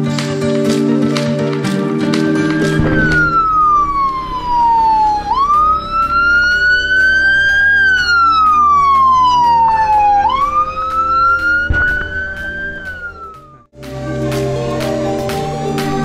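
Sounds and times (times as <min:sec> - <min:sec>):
ambulance siren wailing: 0:02.0 - 0:13.7.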